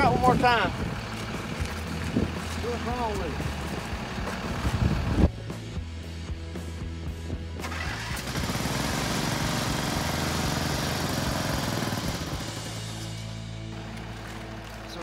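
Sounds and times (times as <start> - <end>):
background music: 0.0 - 15.0
small engine cranking: 7.6 - 13.1.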